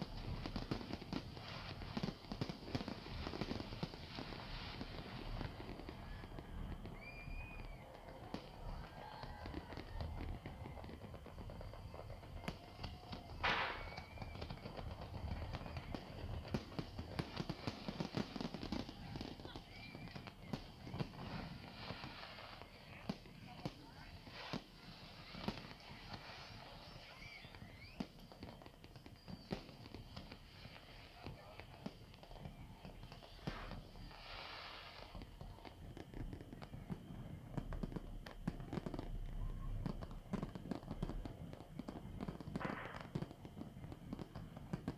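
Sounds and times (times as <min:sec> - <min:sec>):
fireworks pops bangs and crackles: 0:00.0 - 0:44.9.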